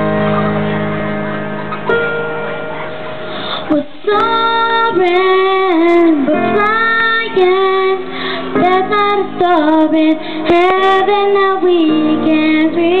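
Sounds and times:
instrumental backing track: 0.0s - 13.0s
girl singing pop ballad: 3.6s - 13.0s.

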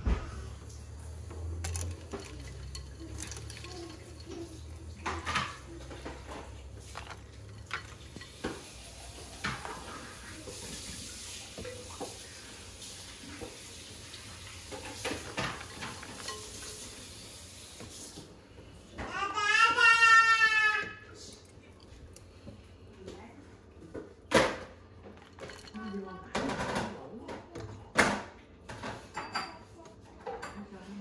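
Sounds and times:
water splashing: 1.6s - 17.7s.

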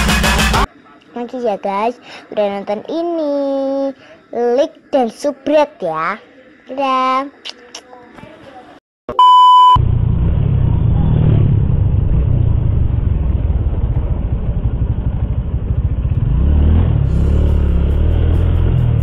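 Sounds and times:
short electronic beep: 9.1s - 9.8s
motorcycle engine running: 10.0s - 19.0s.

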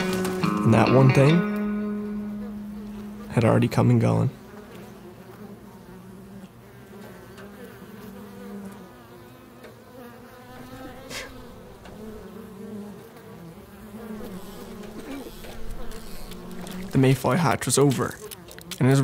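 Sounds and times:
flies buzzing: 0.0s - 19.0s.

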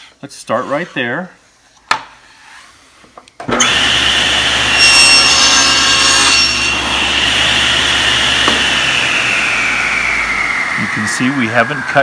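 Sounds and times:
table saw running: 3.5s - 12.0s
saw blade cutting wood: 3.6s - 12.0s.

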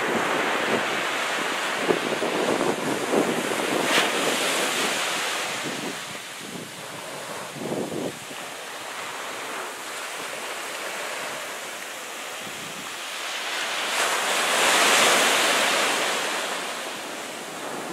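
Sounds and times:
wind buffeting microphone: 0.0s - 10.5s, 11.3s - 13.0s
waves breaking on sand beach: 0.0s - 17.9s.

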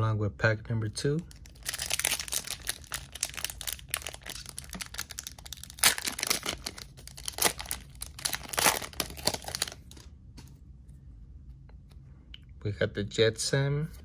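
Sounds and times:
foil wrapper crinkling and tearing: 1.3s - 10.1s.

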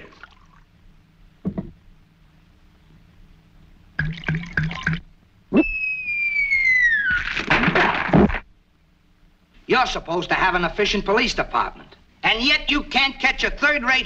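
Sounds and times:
man gulping water: 0.0s - 0.6s, 4.0s - 5.6s
whistle sliding down: 5.6s - 7.3s.

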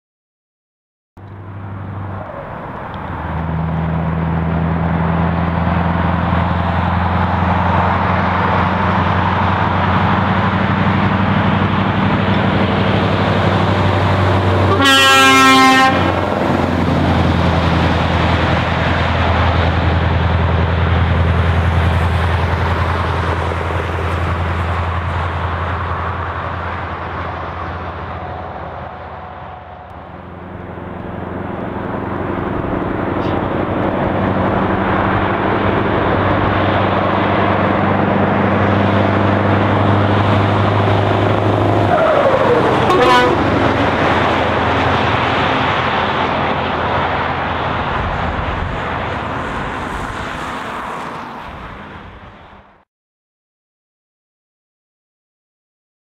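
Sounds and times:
truck driving past: 1.2s - 52.8s
truck horn blast: 14.6s - 16.3s, 42.6s - 44.2s.

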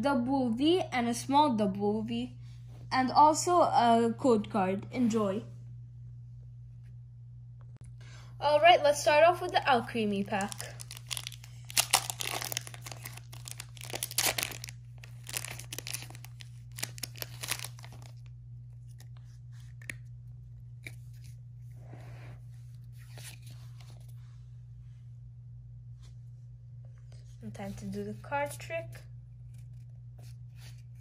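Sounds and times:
steady low hum: 0.0s - 31.0s
plastic foil wrapper tearing: 10.0s - 18.3s
cards rustling and clicking: 10.1s - 18.2s.

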